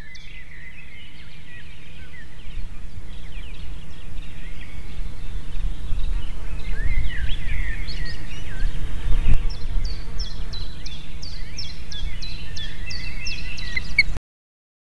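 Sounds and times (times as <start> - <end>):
birds calling: 0.0 - 14.2
wind rumbling on microphone: 2.0 - 14.2
osprey high falling chirps: 13.3 - 14.2.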